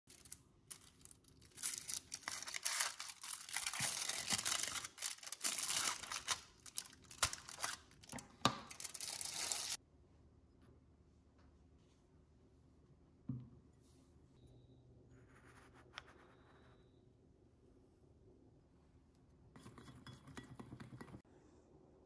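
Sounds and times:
foil wrapper crinkling: 0.1 - 9.8.

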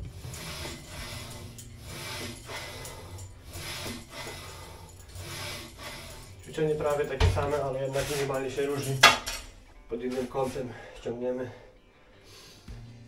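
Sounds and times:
person breathing: 0.0 - 7.2, 10.4 - 12.9
steel cable rubbing through pulleys: 0.0 - 10.8.

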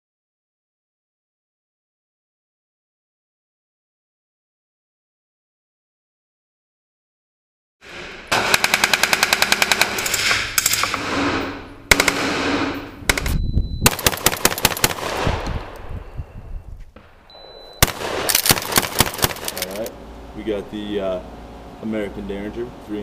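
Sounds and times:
rapid gunfire: 7.8 - 15.4, 17.8 - 19.9
single gunshots: 7.8 - 15.8, 17.0 - 19.8.

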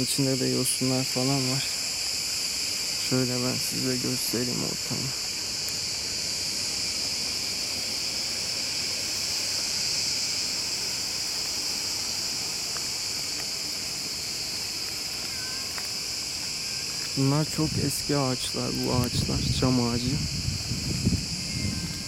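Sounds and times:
cicadas buzzing: 0.0 - 22.0.

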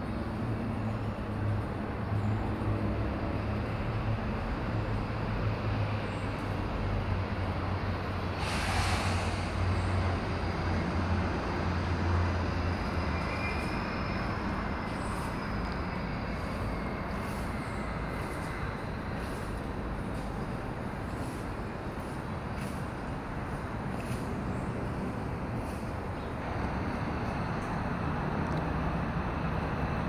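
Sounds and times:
distant motor traffic rumble: 0.0 - 30.0
short rushing hiss: 8.4 - 9.7.

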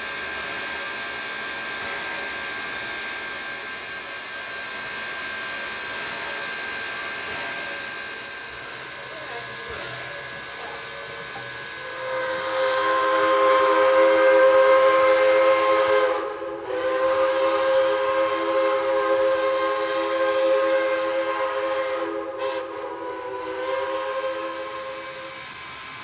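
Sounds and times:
hissing steam: 0.0 - 26.0
steam whistle blowing chord: 6.4 - 26.0.

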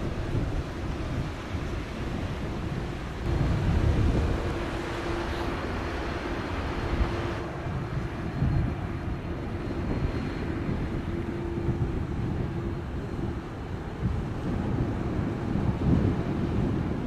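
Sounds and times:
distant jet engine rumble: 0.0 - 17.0.

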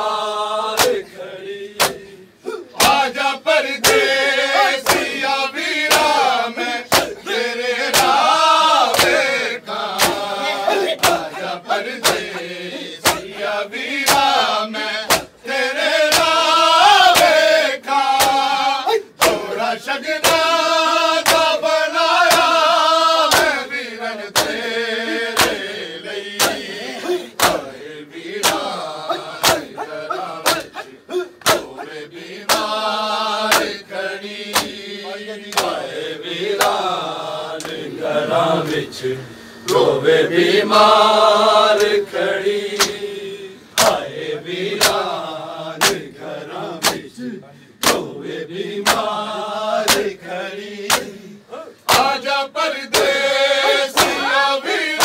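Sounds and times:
men chanting a lament: 0.0 - 55.0
palms slapping chests: 0.8 - 1.1, 1.8 - 2.1, 2.8 - 4.2, 4.8 - 6.3, 6.9 - 14.4, 15.0 - 15.4, 16.1 - 16.4, 17.1 - 17.5, 18.1 - 18.5, 19.2 - 19.6, 20.2 - 20.6, 21.2 - 21.6, 22.2 - 22.6, 23.2 - 23.6, 24.3 - 31.8, 32.4 - 32.8, 33.5 - 33.9, 34.5 - 34.8, 35.5 - 35.9, 43.8 - 44.0, 44.7 - 45.1, 45.8 - 46.1, 46.8 - 47.1, 47.8 - 48.1, 48.8 - 49.1, 49.8 - 50.2, 50.8 - 51.1, 51.9 - 52.2, 52.8 - 54.3.

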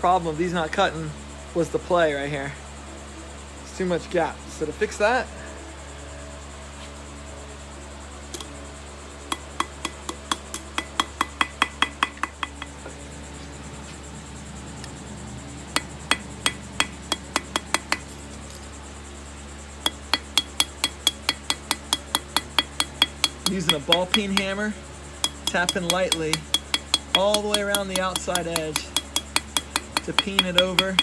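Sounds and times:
hammer tapping metal rivet: 9.3 - 12.7, 15.8 - 18.1, 19.8 - 24.6, 25.2 - 31.0.

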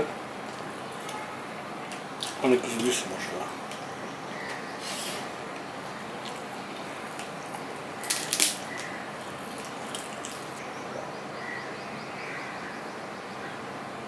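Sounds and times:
mouth chewing smacks: 5.9 - 8.0, 8.6 - 10.6.

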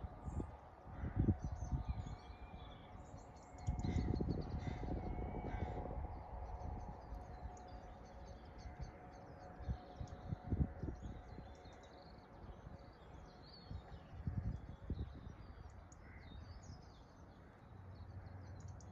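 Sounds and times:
birds cawing: 3.8 - 5.8.

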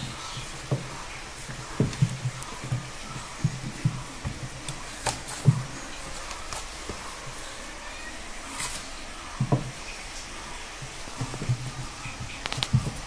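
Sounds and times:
paws thumping on wood: 0.0 - 7.4, 10.7 - 13.0.

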